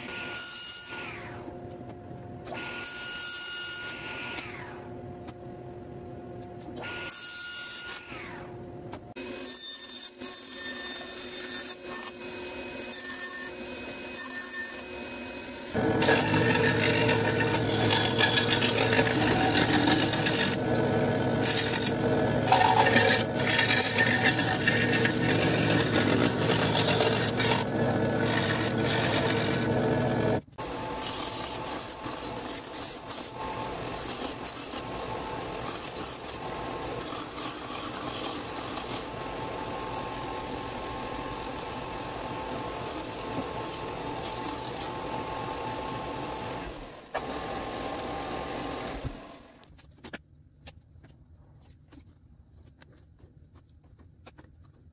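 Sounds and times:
scroll saw cutting: 0:09.2 - 0:49.6
belt and disc sander running: 0:15.8 - 0:32.5.

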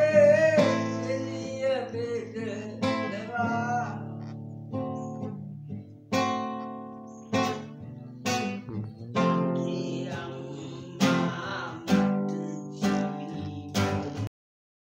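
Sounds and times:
acoustic guitar chords strummed: 0:00.0 - 0:14.3.

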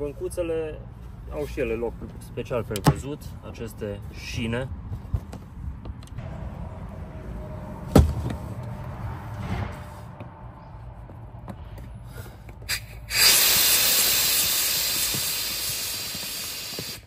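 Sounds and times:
air hissing out of valve: 0:12.7 - 0:17.0.

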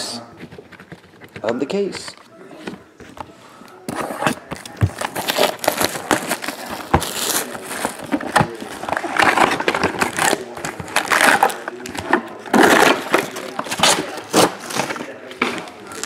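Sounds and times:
cardboard box opening: 0:03.8 - 0:15.6
foil packs handled: 0:03.9 - 0:16.0
plastic wrap crinkling and tearing: 0:04.0 - 0:16.0.

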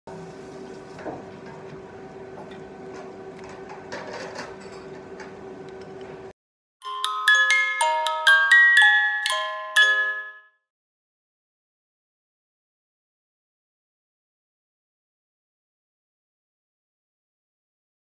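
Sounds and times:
restaurant background hum: 0:00.1 - 0:06.4
bell-like jingle: 0:06.8 - 0:10.6.

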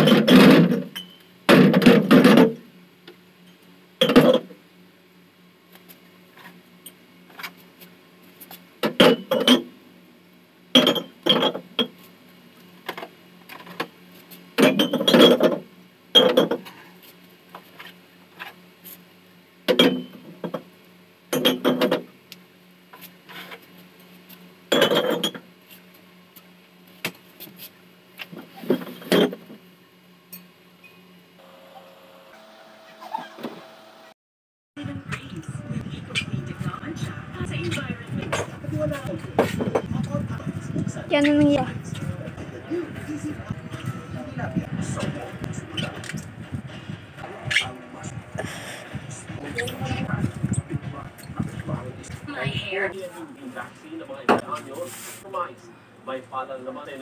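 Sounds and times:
glass bottles clinking: 0:10.8 - 0:11.6, 0:14.6 - 0:15.6, 0:24.7 - 0:25.4.

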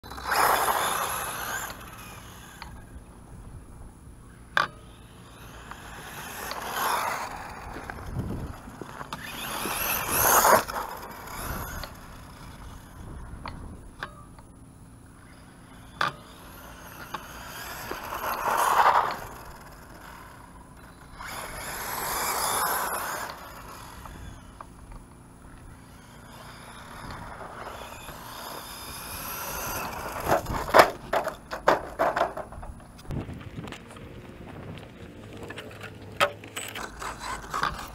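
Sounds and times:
rc truck motor and tyres: 0:00.0 - 0:37.9.

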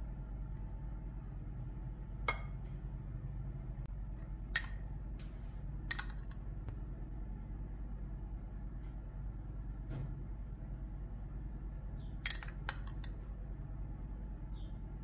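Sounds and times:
steady low hum: 0:00.0 - 0:15.0
spoon clinking glass bowl: 0:02.2 - 0:02.7, 0:04.5 - 0:04.9, 0:05.9 - 0:06.4, 0:12.2 - 0:13.2.

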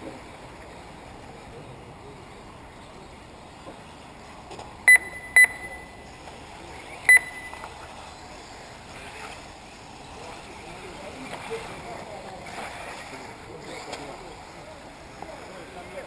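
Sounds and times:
steady background noise: 0:00.0 - 0:16.0
short high electronic beeps: 0:04.9 - 0:06.1, 0:07.1 - 0:07.7.

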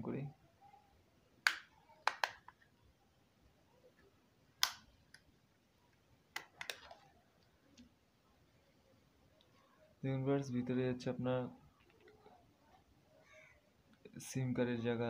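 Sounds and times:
plastic cover clicks and snaps: 0:01.4 - 0:02.6, 0:04.6 - 0:05.2, 0:06.3 - 0:07.1.

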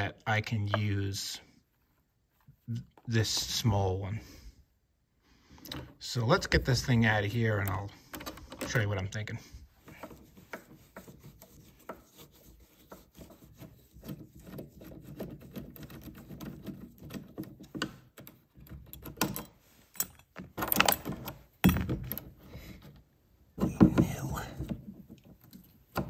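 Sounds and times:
screwdriver clicking and scraping: 0:09.8 - 0:22.4
metal lock clattering: 0:17.1 - 0:22.4.

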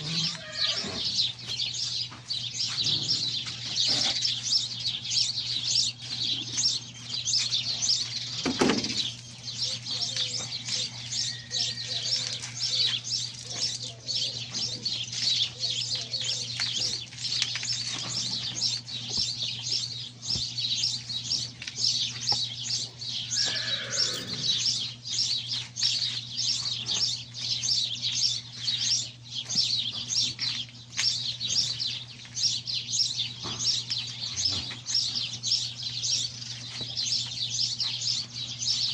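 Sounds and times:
small birds chirping: 0:00.0 - 0:38.9.

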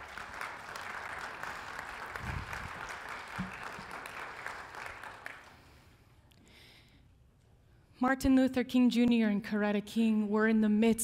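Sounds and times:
crowd clapping: 0:00.0 - 0:05.8.

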